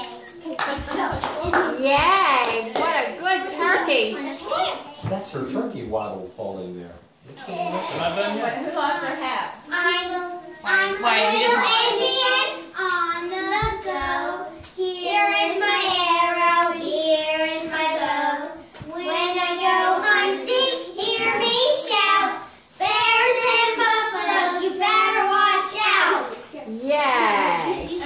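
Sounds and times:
children singing: 10.2s - 26.2s.

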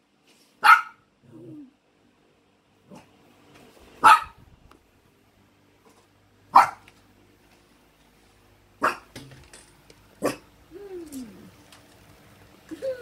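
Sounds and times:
dog yipping: 0.6s - 1.0s, 4.0s - 4.4s, 6.6s - 6.8s
small dog barking: 0.6s - 1.1s, 4.0s - 4.4s, 6.5s - 6.9s, 8.8s - 9.1s, 10.2s - 10.5s.

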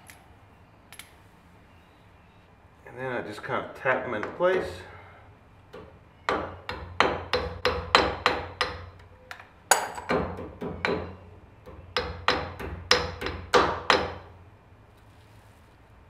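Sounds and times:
hammer tapping metal: 5.7s - 14.3s.

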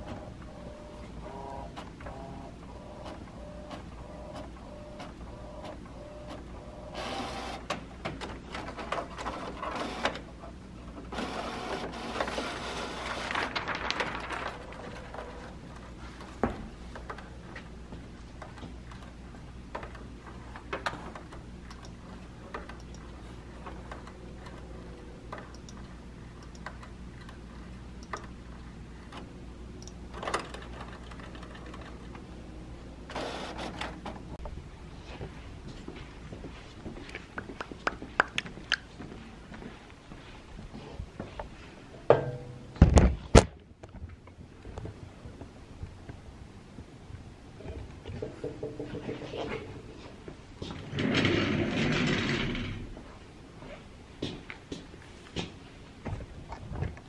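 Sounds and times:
printer mechanical whirring: 0.0s - 13.7s, 33.0s - 34.3s
printer humming: 0.0s - 16.0s, 32.9s - 34.1s.

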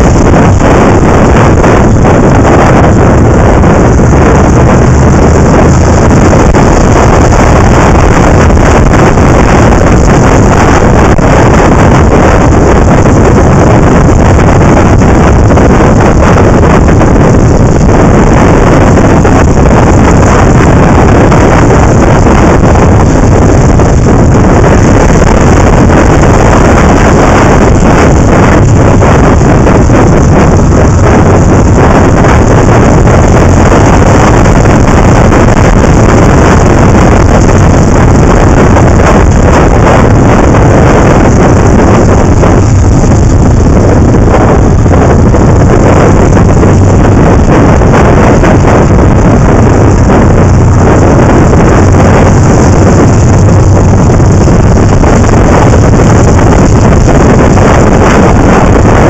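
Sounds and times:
motorcycle engine running: 0.0s - 59.0s
wind rushing over microphone: 0.0s - 59.0s.

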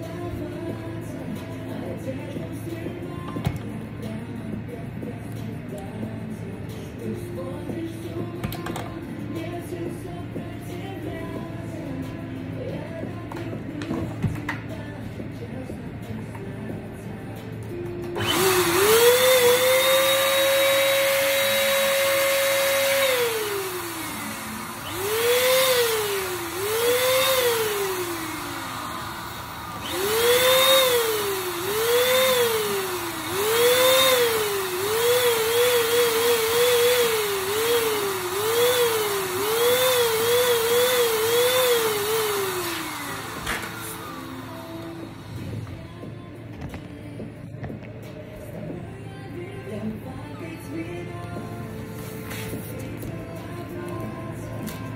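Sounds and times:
balloon inflator motor whining: 18.1s - 46.8s.

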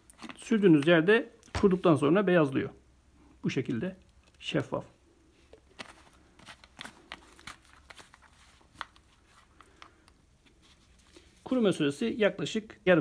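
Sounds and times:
small clicks and light rustles: 3.9s - 4.7s.

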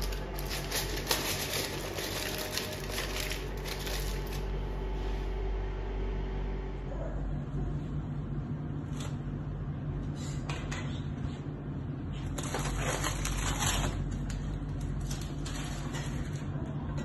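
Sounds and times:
aluminium foil crinkling: 0.0s - 4.6s, 12.2s - 16.6s
steady low hum: 0.0s - 17.0s.

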